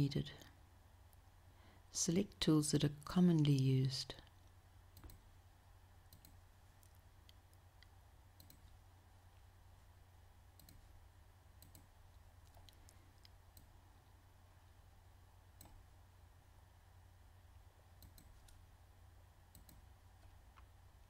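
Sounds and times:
steady low hum: 0.0s - 21.0s
computer mouse clicks: 4.2s - 5.3s, 6.1s - 8.8s, 10.6s - 10.9s, 11.6s - 13.7s, 15.6s - 15.9s, 18.0s - 18.6s, 19.5s - 20.7s.

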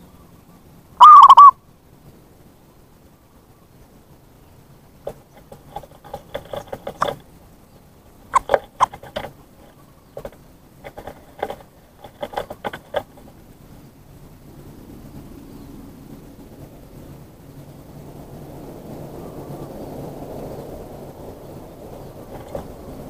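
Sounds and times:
dove staccato cooing: 1.0s - 1.5s, 5.1s - 7.4s, 8.3s - 13.4s, 22.0s - 23.0s.

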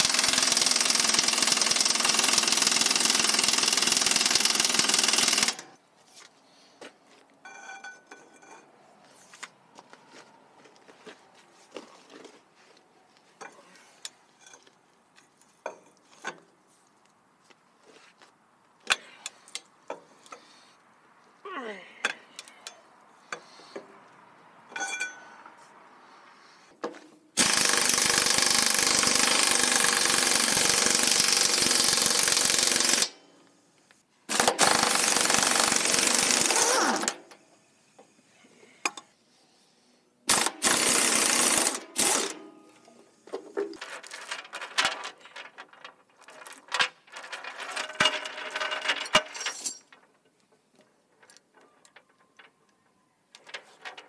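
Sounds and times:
pneumatic impact wrench bursts: 0.0s - 5.7s, 27.4s - 33.2s, 34.3s - 38.2s, 40.2s - 42.5s.

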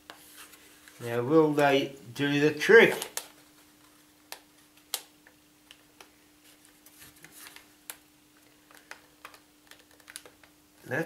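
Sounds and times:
faint steady hum: 0.0s - 11.0s.

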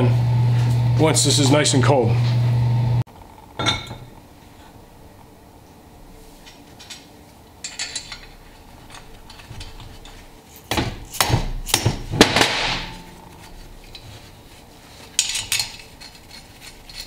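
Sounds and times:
mallet knocking metal gear: 10.7s - 13.2s.

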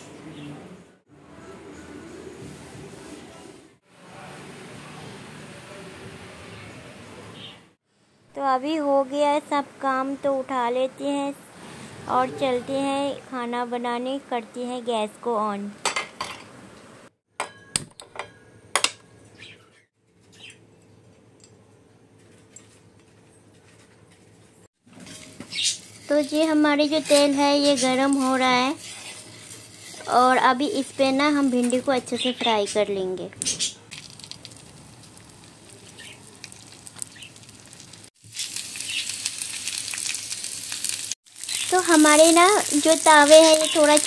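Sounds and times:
okra sizzling in hot oil: 25.0s - 32.2s, 33.9s - 44.0s.

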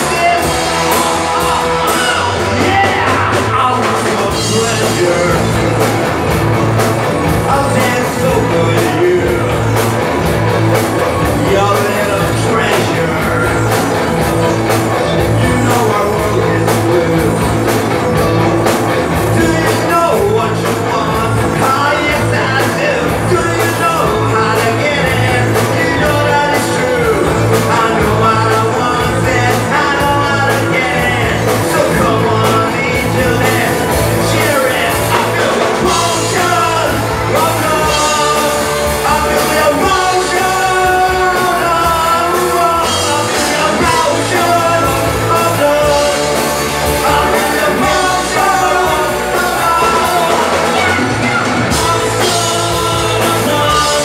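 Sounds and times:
live rock band playing: 0.0s - 54.0s
man singing lead vocal: 0.0s - 54.0s.

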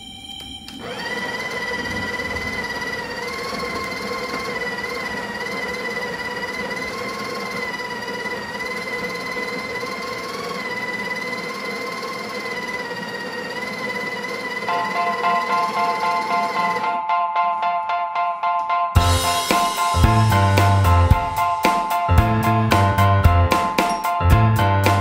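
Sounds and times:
coffee grinder whine: 0.0s - 17.0s, 19.0s - 25.0s.

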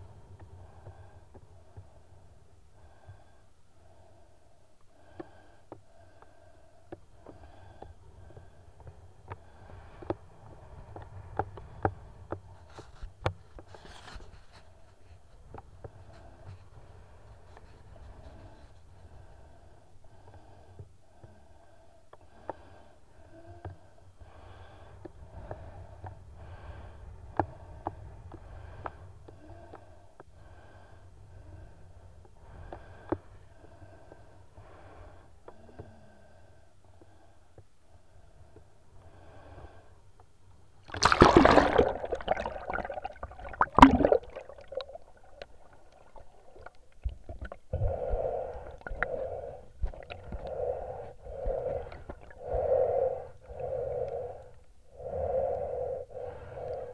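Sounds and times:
muffled sea water sloshing: 40.8s - 52.6s
water hissing: 40.9s - 46.8s.

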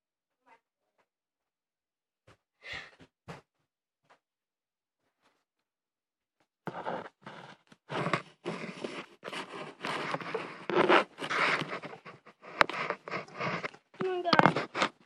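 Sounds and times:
phone handling scraping: 6.7s - 15.0s.

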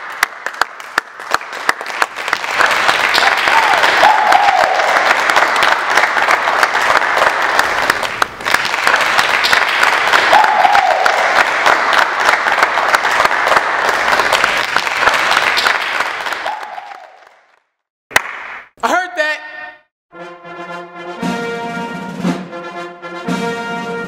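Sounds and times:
people clapping: 0.0s - 18.8s.

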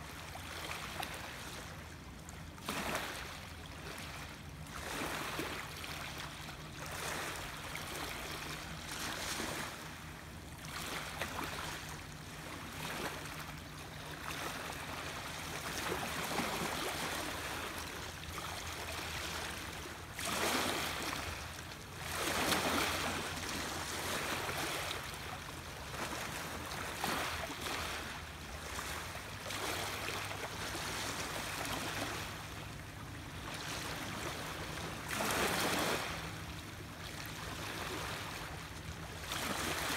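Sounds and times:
small waves lapping: 0.0s - 39.9s.

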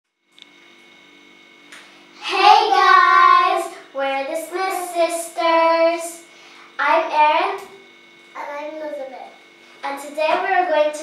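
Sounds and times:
girls' sing-song voices: 2.2s - 3.8s.

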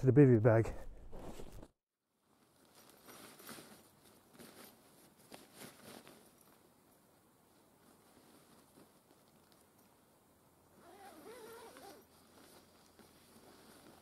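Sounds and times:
fabric rustling and crinkling: 1.1s - 6.7s, 7.5s - 9.7s, 11.0s - 14.0s.

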